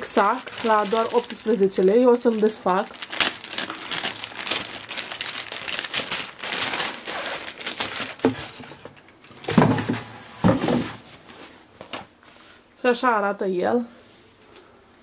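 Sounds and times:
plastic bag crinkling: 0:00.0 - 0:09.0.

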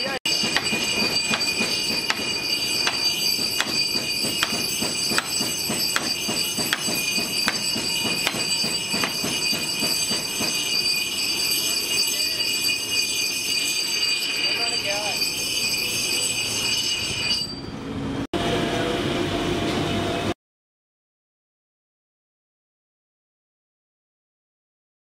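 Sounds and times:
bench grinder whine: 0:00.3 - 0:17.5.

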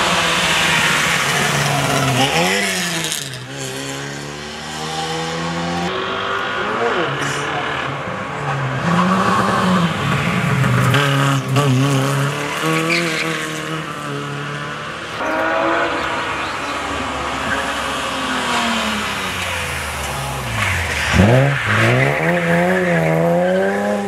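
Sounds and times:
rally car engine approaching: 0:00.0 - 0:24.0
rally car engine passing: 0:00.0 - 0:24.0.

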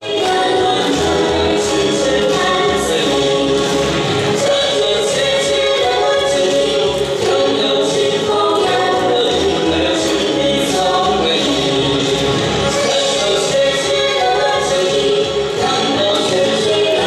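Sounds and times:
woman singing into a microphone: 0:00.0 - 0:03.2
backing music with a beat: 0:00.0 - 0:17.0.

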